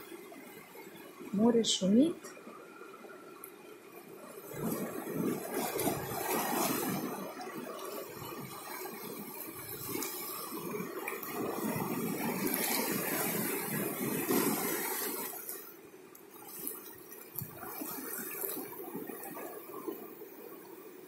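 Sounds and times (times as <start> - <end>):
small waves breaking on rock: 4.4 - 20.5.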